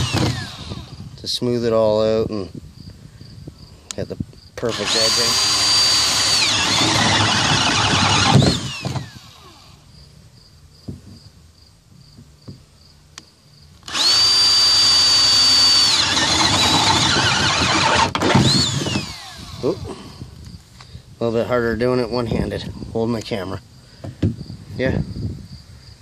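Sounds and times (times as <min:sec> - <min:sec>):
power drill boring through plastic: 0:00.0 - 0:01.1, 0:04.6 - 0:09.8, 0:13.8 - 0:19.9.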